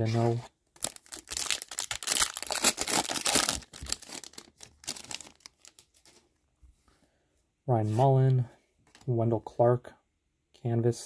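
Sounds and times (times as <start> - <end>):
card pack wrapper crinkling and tearing: 0.8 - 6.2.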